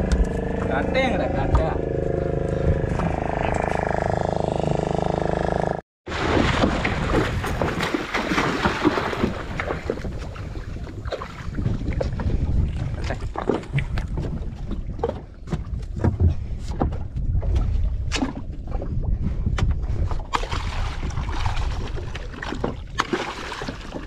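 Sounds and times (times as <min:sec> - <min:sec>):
water splashing against boat: 0:06.1 - 0:24.0
wind buffeting microphone: 0:09.0 - 0:23.0.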